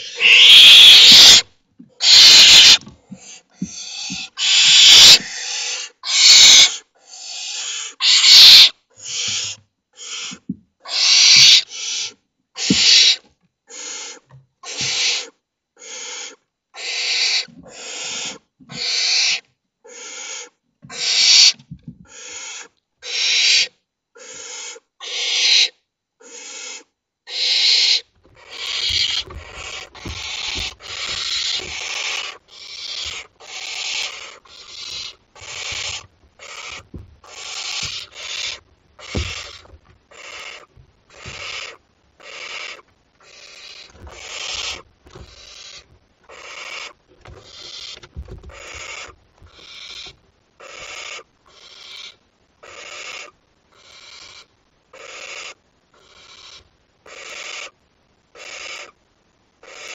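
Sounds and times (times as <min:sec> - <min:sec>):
owl chicks hissing begging calls: 0:00.0 - 0:59.0, 0:59.6 - 0:59.9
soft thumps: 0:28.2 - 0:32.3, 0:34.5 - 0:40.1, 0:40.7 - 0:41.8, 0:43.9 - 0:46.1, 0:47.0 - 0:50.2.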